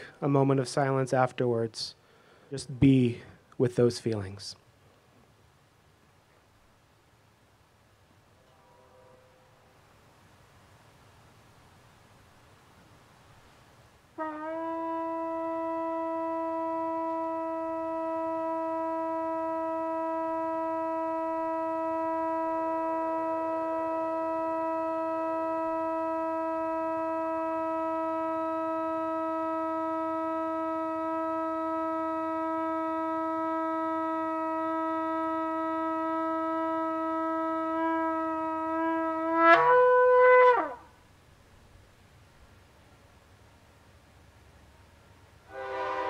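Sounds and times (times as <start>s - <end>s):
shofar long note: 8.4s - 9.7s, 14.2s - 41.0s, 45.5s - 46.0s.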